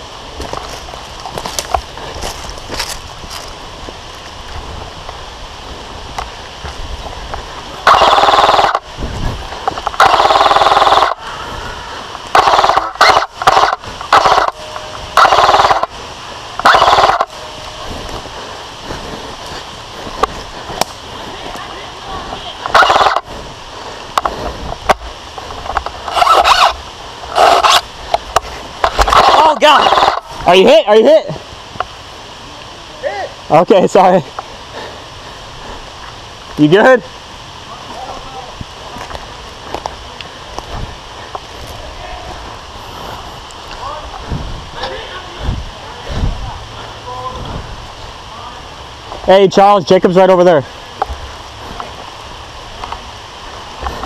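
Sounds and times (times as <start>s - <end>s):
airsoft rifle full-auto bursts: 7.8s - 8.8s, 10.0s - 11.2s, 12.3s - 14.6s, 15.2s - 15.9s, 16.6s - 17.3s, 22.7s - 23.3s, 26.0s - 27.8s, 29.0s - 30.2s.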